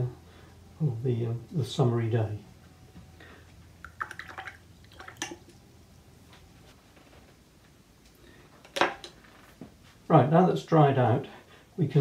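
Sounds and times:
faint water drips: 3.8s - 5.6s.

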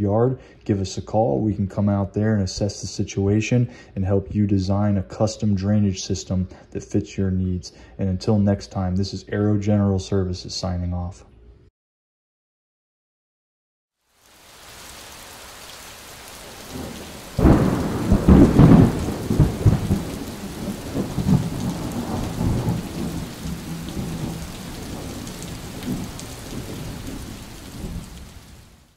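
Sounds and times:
steady rain hiss: 14.0s - 28.9s
rolling thunder rumble: 16.4s - 28.6s
thunderclap: 16.5s - 28.5s.

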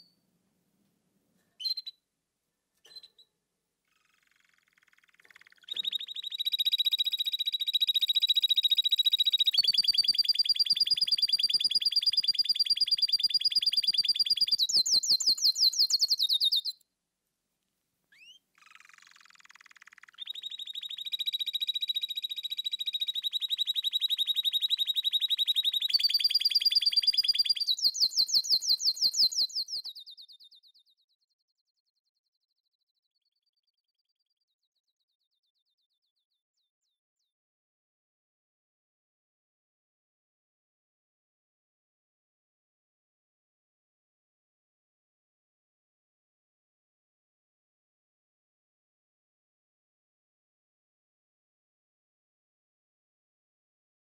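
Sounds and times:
canary singing trills: 1.6s - 2.0s, 3.9s - 16.8s, 18.1s - 30.9s.

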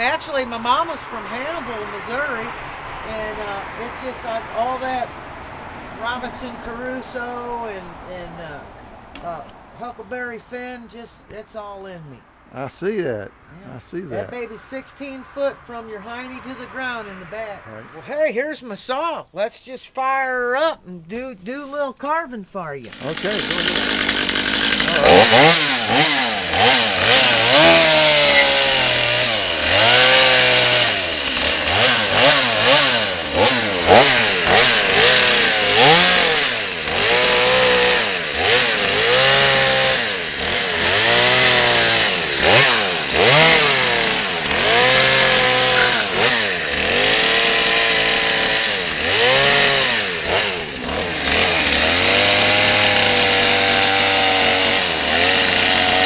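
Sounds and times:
chainsaw revving into wood: 22.8s - 56.0s.

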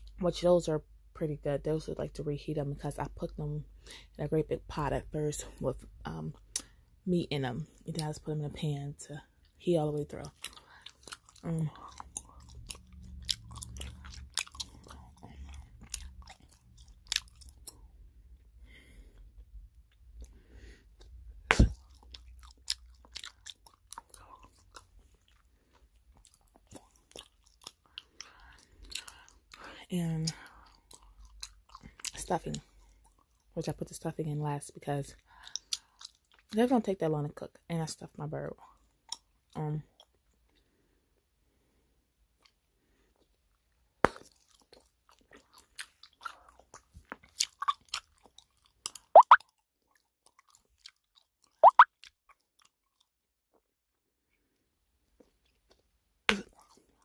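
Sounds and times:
gum chewing smacks: 10.2s - 17.9s, 21.0s - 33.5s, 44.0s - 53.0s, 55.2s - 57.0s.

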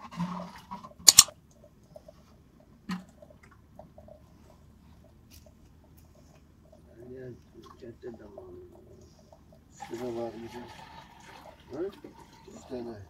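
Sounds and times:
sharp clicks: 1.1s - 1.3s
faint ticks and patter: 1.4s - 10.4s.

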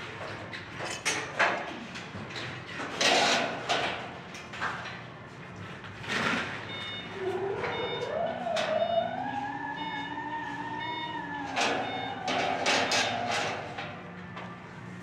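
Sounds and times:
metallic knocks clanks and scrapes: 2.8s - 4.0s.

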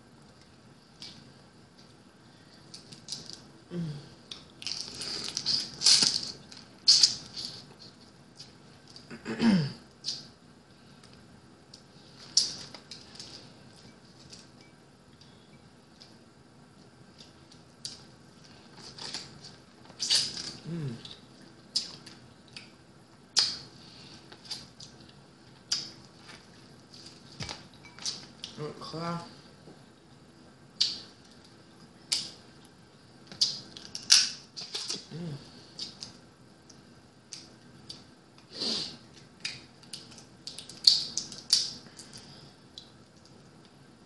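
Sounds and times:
crab shell cracking: 33.3s - 35.0s, 39.4s - 42.2s.

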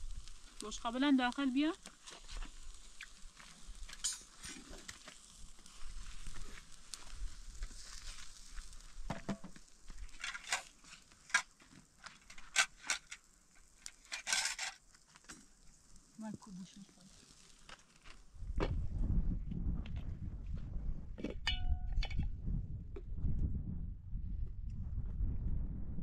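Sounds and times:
food sizzling in a pan: 0.0s - 18.3s
utensil scraping a pan: 13.8s - 14.8s.

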